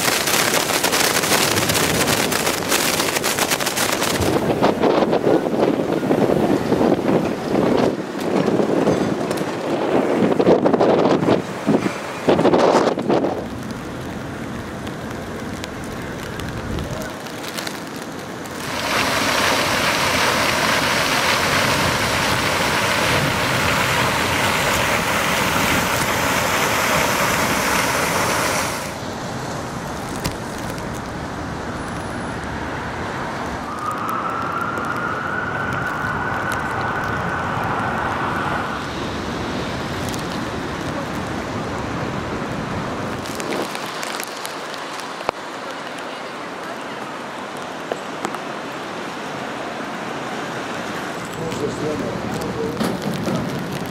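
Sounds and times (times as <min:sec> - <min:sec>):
fountain water splashing: 0:00.0 - 0:53.9
street noise on wet pavement: 0:00.0 - 0:53.9
faint siren-like tone: 0:33.6 - 0:38.8.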